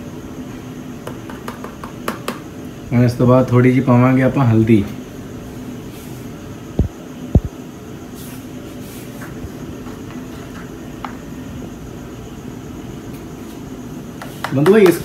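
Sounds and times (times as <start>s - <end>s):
steady low hum: 0.0s - 14.3s
dull thumps: 6.8s - 7.5s.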